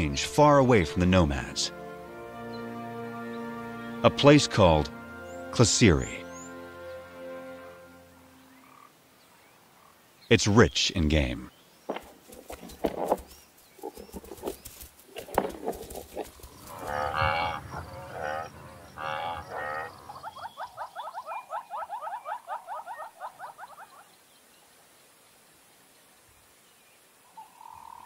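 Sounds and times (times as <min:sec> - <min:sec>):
animals jostling knocks: 0:11.9 - 0:17.6
buffalo lowing: 0:15.2 - 0:20.9.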